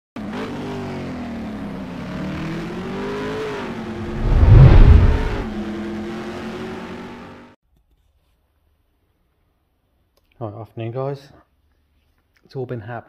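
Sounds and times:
car engine at steady revs: 0:00.2 - 0:07.4
deep rush of car passing: 0:03.9 - 0:05.6.

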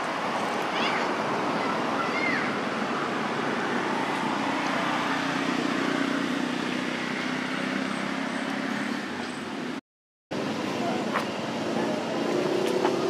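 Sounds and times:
vehicle engine humming: 0:03.2 - 0:13.0.

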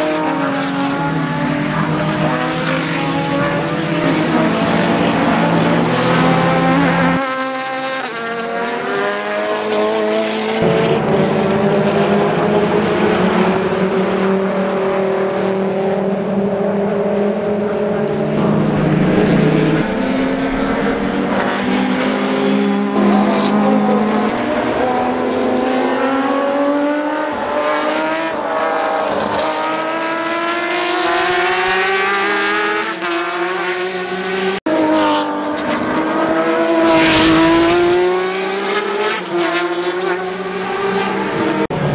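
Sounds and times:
racing car engines passing: 0:00.0 - 0:41.9
engine revving up: 0:18.4 - 0:34.6.

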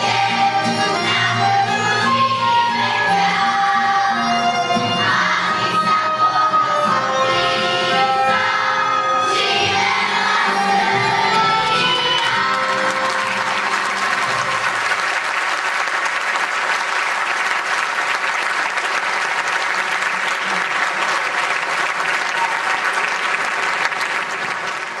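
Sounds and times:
children's choir singing: 0:00.0 - 0:14.9
audience applauding: 0:11.0 - 0:25.0.

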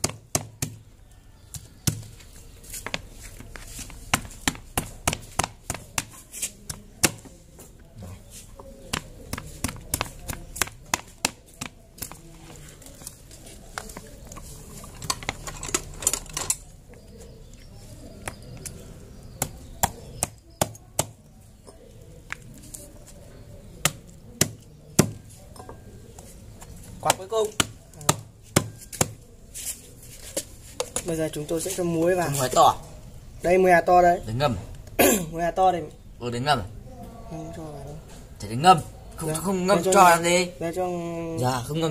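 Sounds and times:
wooden pestle pounding fruit: 0:04.0 - 0:07.3, 0:08.9 - 0:12.2.

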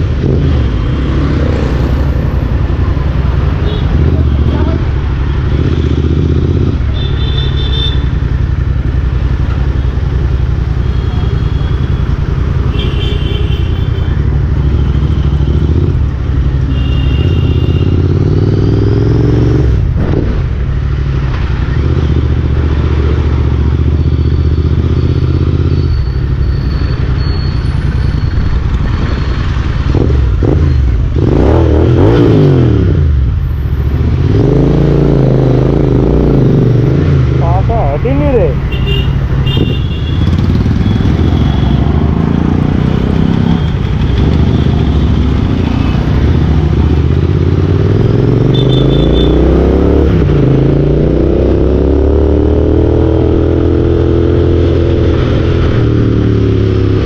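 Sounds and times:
motorcycle engine running: 0:38.8 - 0:49.3.

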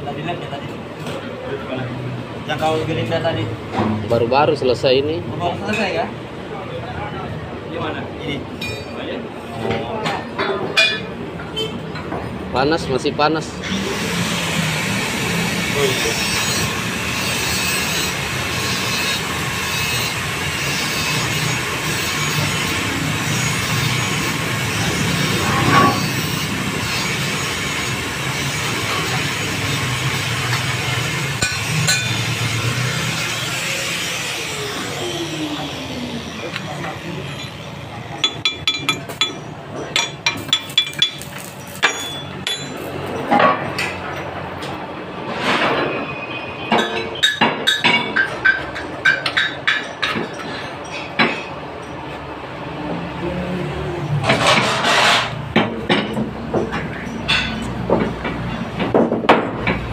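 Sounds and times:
machine humming and hissing: 0:13.6 - 0:38.3
metal scrape: 0:15.8 - 0:34.5, 0:54.2 - 0:55.4.

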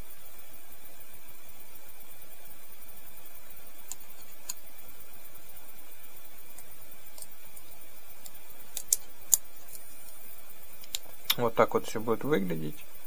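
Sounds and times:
steady hiss: 0:00.0 - 0:13.0
folding knife parts clicking: 0:08.2 - 0:09.8.

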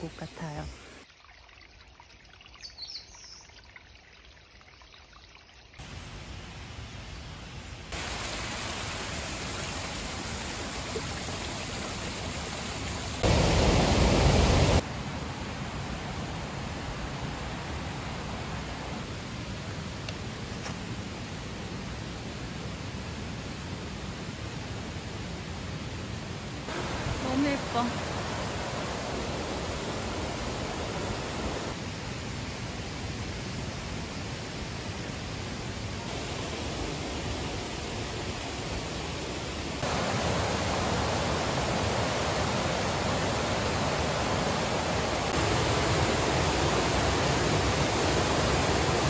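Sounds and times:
stream trickling over rocks: 0:00.4 - 0:05.9, 0:07.9 - 0:13.5, 0:39.8 - 0:49.0
deep water rush: 0:07.9 - 0:19.5, 0:26.6 - 0:49.0.

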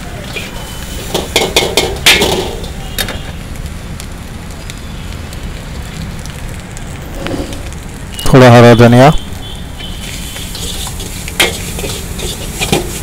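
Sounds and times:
gas burner rushing: 0:00.0 - 0:03.7, 0:05.7 - 0:08.4, 0:10.0 - 0:13.0
metal ladle clanking on a wok: 0:00.4 - 0:02.8.

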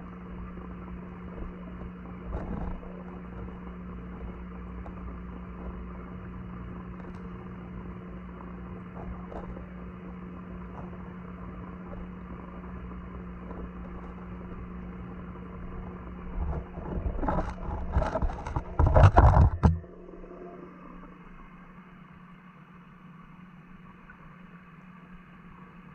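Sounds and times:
churning water: 0:00.0 - 0:25.9
low underwater hum: 0:00.0 - 0:25.9
rumbling knocks: 0:16.4 - 0:19.8.

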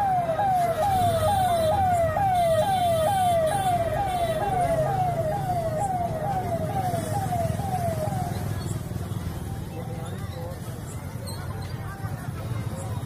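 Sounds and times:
electronic siren: 0:00.0 - 0:08.6.

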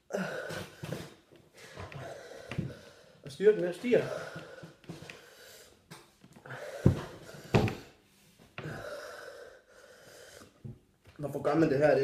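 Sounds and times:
man breathing hard: 0:00.0 - 0:03.3, 0:03.9 - 0:08.0, 0:08.6 - 0:10.7.

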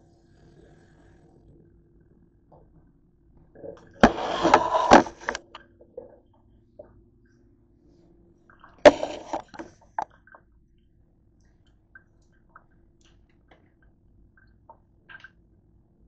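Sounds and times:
camera knocking and clattering: 0:04.0 - 0:05.4, 0:08.9 - 0:09.7.

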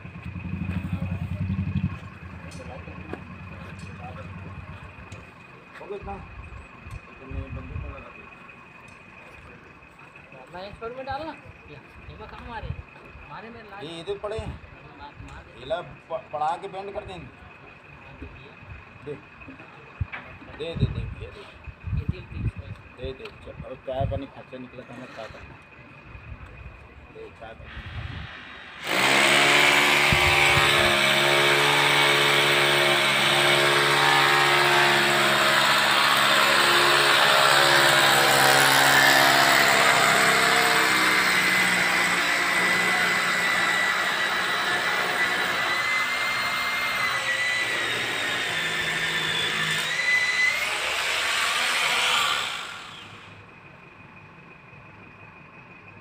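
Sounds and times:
power drill whining: 0:27.8 - 0:53.4.

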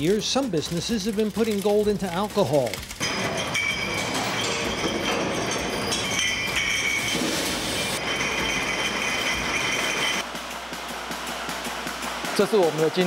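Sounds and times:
glass bottles clinking: 0:00.0 - 0:10.2
machine noise: 0:00.0 - 0:13.0.

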